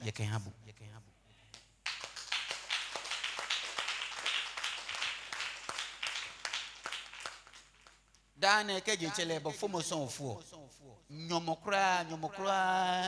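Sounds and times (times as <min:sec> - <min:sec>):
hands clapping: 0:01.5 - 0:08.3.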